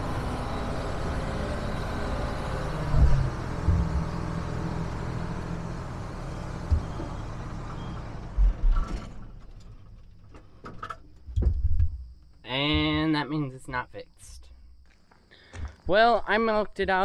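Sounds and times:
engine running and stalling: 0.0s - 10.8s
knocks: 11.3s - 12.0s.

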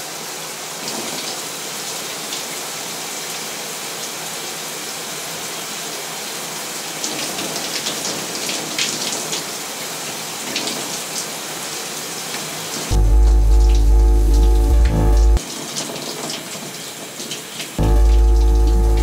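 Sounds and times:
shower water running: 0.2s - 19.0s
loud low drone: 12.9s - 15.4s, 17.8s - 19.0s.

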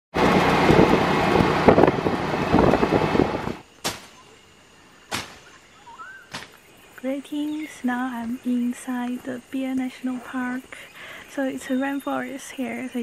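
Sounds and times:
rattling vehicle engine: 0.1s - 3.6s
road and wind noise: 0.1s - 3.8s.

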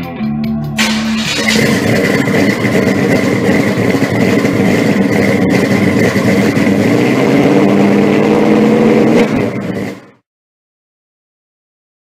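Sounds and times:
car engine running: 0.8s - 10.2s.

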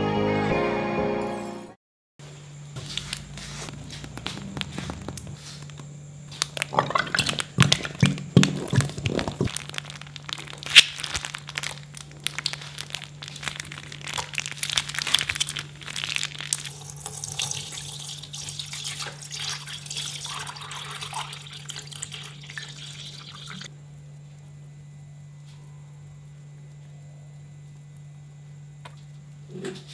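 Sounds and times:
thick glue pouring and squelching: 3.0s - 23.7s
water pouring and splashing: 6.6s - 23.7s.

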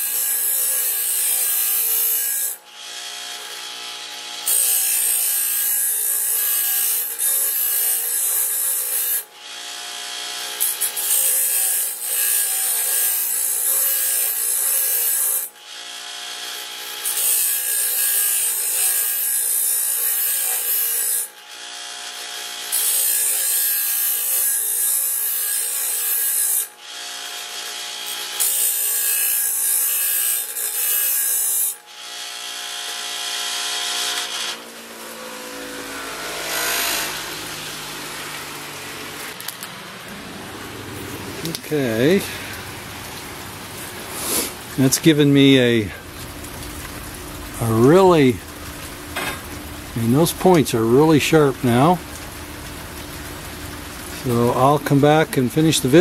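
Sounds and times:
grinder scraping steel blade: 0.0s - 38.2s, 44.1s - 45.2s
grinder motor hum: 1.2s - 11.4s, 31.8s - 44.9s.

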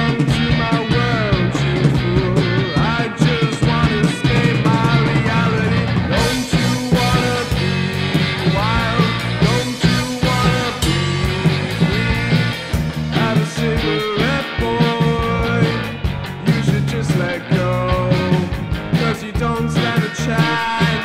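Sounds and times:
man singing: 0.0s - 12.5s, 13.1s - 21.0s
drum kit with cymbals: 0.0s - 21.0s
electric guitar: 0.0s - 21.0s.

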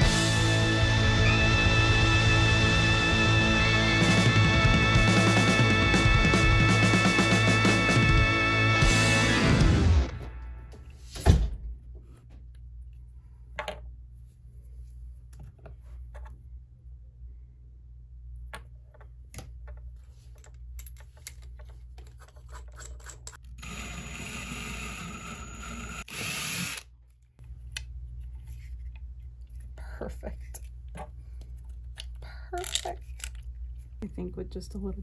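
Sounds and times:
cordless drill running: 23.6s - 26.9s.

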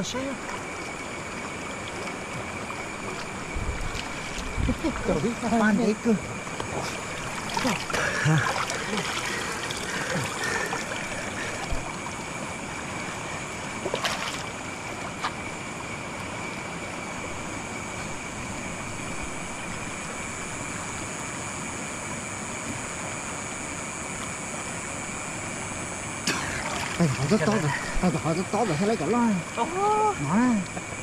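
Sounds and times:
stream water over rocks: 0.0s - 31.0s
hands splashing in water: 7.2s - 11.9s, 13.9s - 14.5s.

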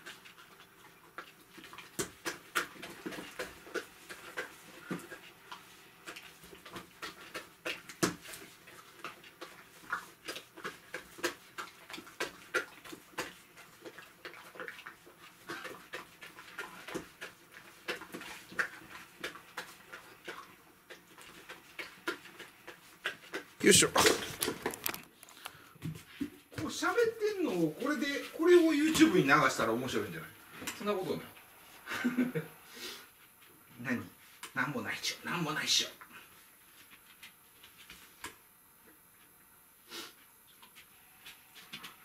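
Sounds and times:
dog smacking and chewing: 0.0s - 25.5s.

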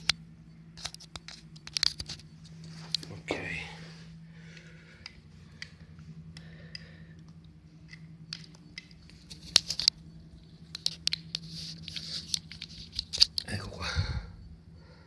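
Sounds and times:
steady low hum: 0.0s - 15.0s
charging cable clicks and rubbing: 0.8s - 3.1s, 5.0s - 13.6s.

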